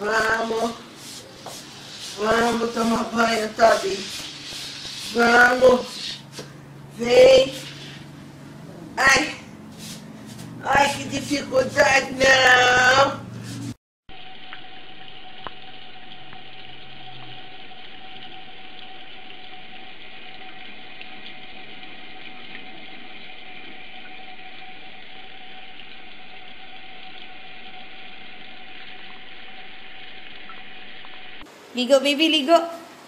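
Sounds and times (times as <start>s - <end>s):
tap water running into a sink: 1.0s - 6.5s.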